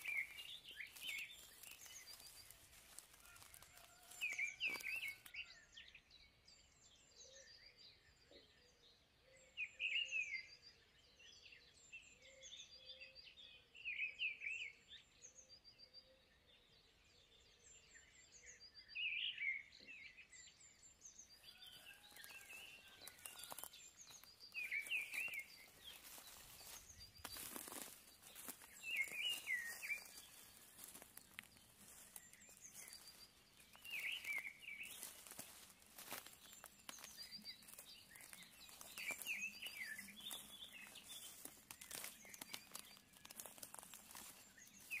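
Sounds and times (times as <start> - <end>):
faint high bird chirps: 21.4 - 45.0.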